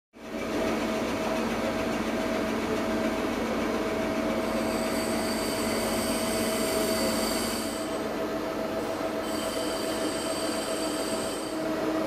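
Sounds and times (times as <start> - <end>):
mill mechanical whirr: 0.2 - 12.0
thin high whine: 4.4 - 11.8.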